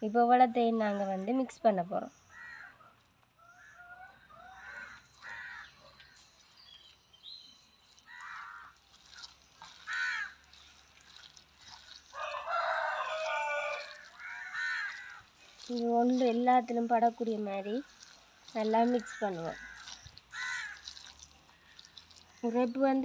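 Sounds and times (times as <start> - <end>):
rooster crowing: 12.1 - 15.0.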